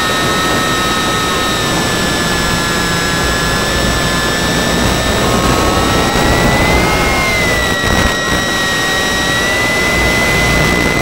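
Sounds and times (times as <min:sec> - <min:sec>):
electric motor and propeller whining: 0:00.0 - 0:11.0
air rushing past: 0:04.0 - 0:08.3.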